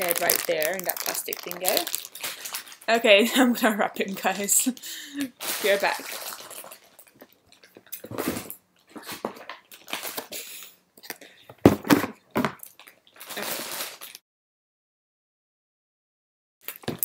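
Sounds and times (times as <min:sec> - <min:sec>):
cardboard and plastic packaging rustling: 0:00.0 - 0:03.5, 0:04.1 - 0:10.4, 0:11.6 - 0:14.2.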